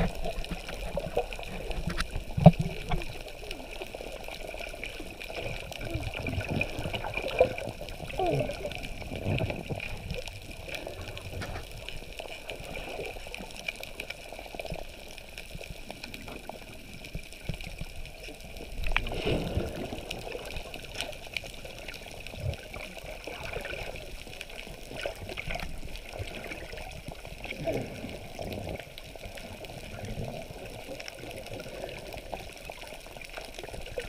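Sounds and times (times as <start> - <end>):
muffled underwater wash: 0.0 - 34.0
water gurgles: 0.0 - 34.0.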